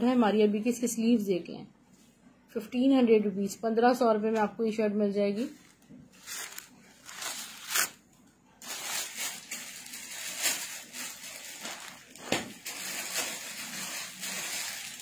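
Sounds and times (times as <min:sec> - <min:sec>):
plastic packaging crinkling: 0:05.6 - 0:08.0, 0:08.6 - 0:15.0.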